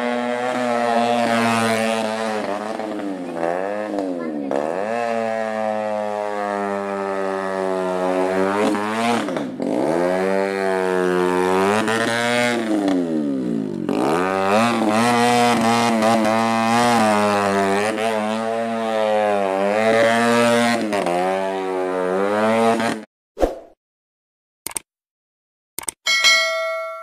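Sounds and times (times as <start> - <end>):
go-kart engine revving: 0.0 - 23.1
short chime: 26.1 - 27.0.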